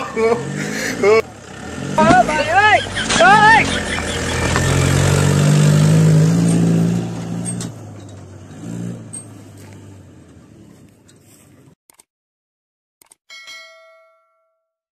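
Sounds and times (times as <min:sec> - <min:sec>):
pickup truck driving past: 0:00.0 - 0:11.1.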